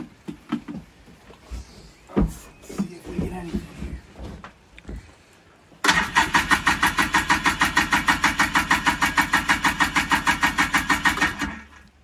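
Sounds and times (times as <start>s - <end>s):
engine cranking on electric starter: 5.8s - 11.9s.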